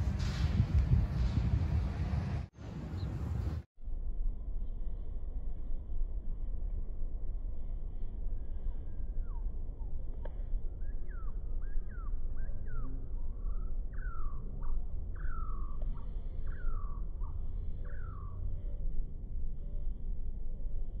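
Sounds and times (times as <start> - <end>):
low rumble: 0.0 - 21.0
songbird whistling: 10.8 - 18.4.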